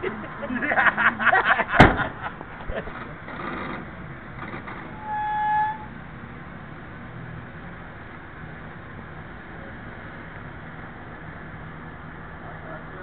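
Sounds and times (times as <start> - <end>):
vehicle horn honk: 5.0 - 5.9.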